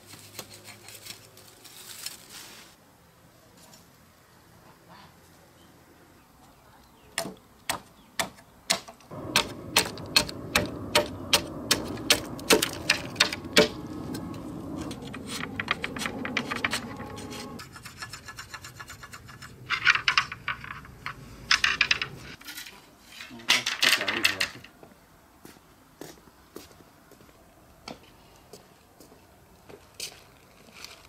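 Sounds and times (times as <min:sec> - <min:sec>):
rustling: 0:00.0 - 0:02.8
blade scraping cane: 0:09.2 - 0:21.3.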